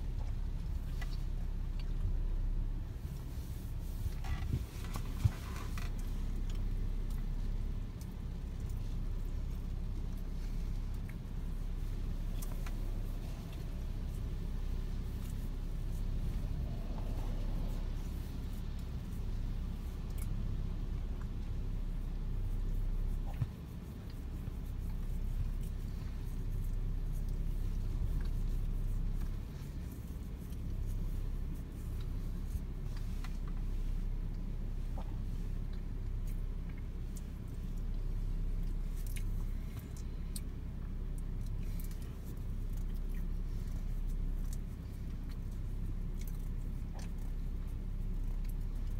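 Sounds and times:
faint ticks: 4.1 - 48.9
strong wind rumbling: 12.8 - 21.4.

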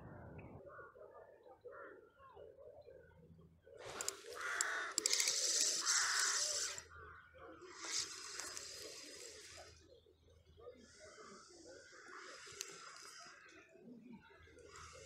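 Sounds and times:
fishing reel whirring: 3.8 - 6.9, 7.7 - 9.8.

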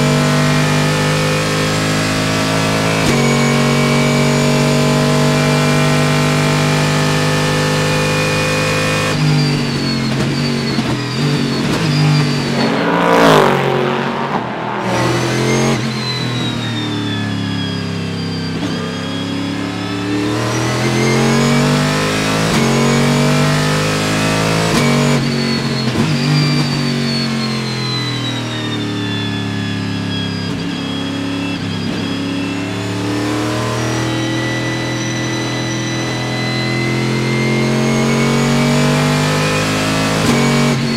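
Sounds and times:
race car engine revving: 0.0 - 40.9
race car engine passing: 11.6 - 16.4.

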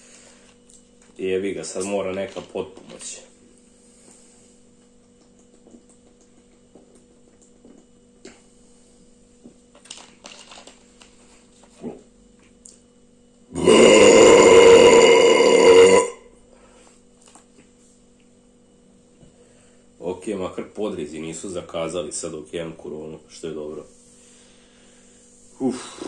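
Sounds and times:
man burping: 13.5 - 16.2.

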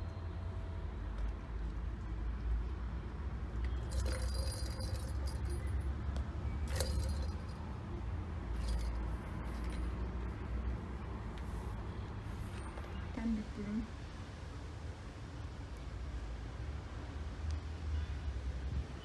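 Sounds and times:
ball rattling in plastic toy: 3.8 - 6.0, 6.6 - 7.7, 8.5 - 9.9.

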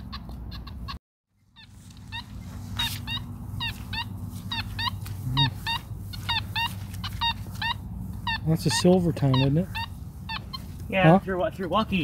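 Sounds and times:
steady low hum: 0.4 - 12.0
short bird calls: 1.5 - 10.8.

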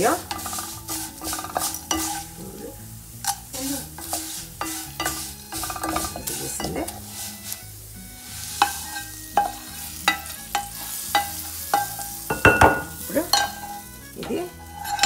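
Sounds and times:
spatula scraping metal pan: 0.0 - 15.0
metallic taps on pan: 4.0 - 6.9, 8.6 - 13.8.

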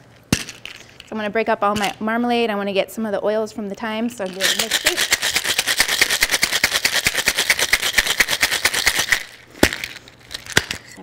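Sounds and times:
ice rattling in a shaker: 4.2 - 10.8.

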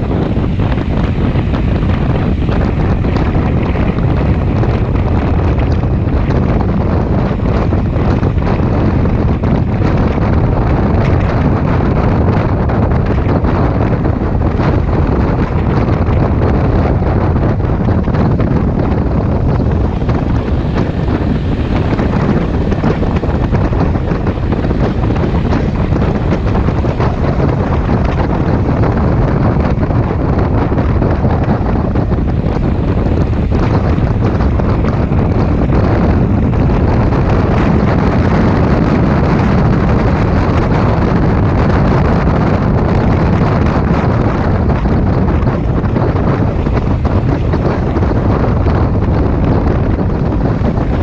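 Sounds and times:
road noise: 0.0 - 51.0
wind buffeting microphone: 0.0 - 51.0.

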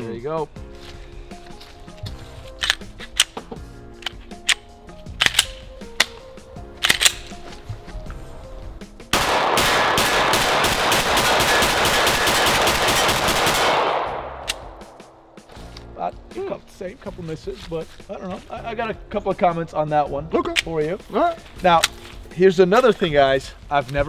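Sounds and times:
background music: 0.0 - 24.0
rapid pistol shots: 9.1 - 14.8.

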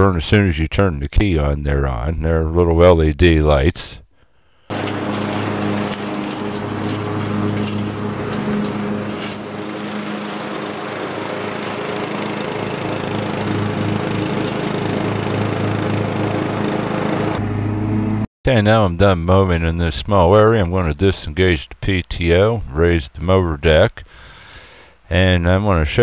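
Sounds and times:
mower blades cutting grass: 4.7 - 18.2
riding mower engine running: 4.7 - 18.2.

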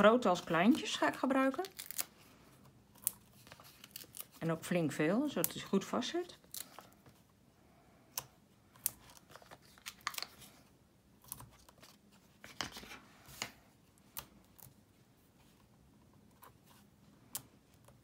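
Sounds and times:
paper rustling: 3.1 - 4.4, 9.0 - 10.7, 11.3 - 13.6.

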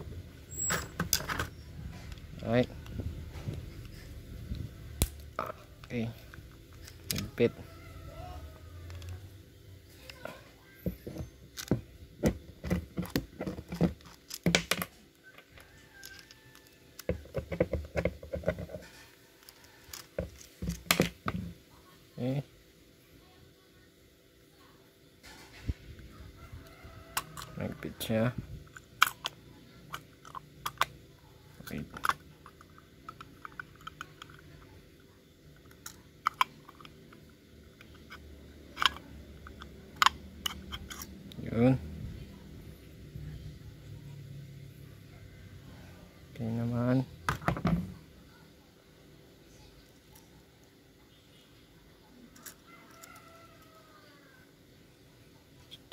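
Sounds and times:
metal parts clicking and tapping: 10.9 - 21.5, 28.7 - 30.9, 31.6 - 34.7, 35.6 - 38.2, 38.8 - 41.1
carburetor being handled: 10.9 - 21.6, 28.6 - 34.8, 35.5 - 41.4.

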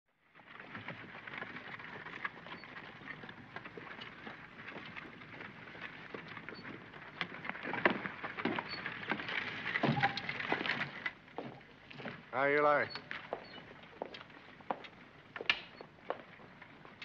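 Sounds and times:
heavy footsteps: 9.8 - 12.3, 13.0 - 15.0.

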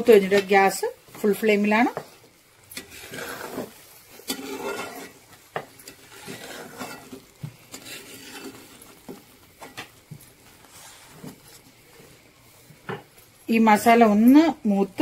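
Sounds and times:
paste frying: 0.0 - 15.0
spoon scraping paste in pan: 2.7 - 11.7.

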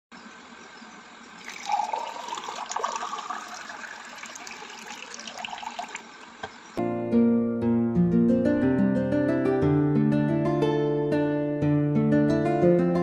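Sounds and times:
water pouring into glass: 1.4 - 6.4.

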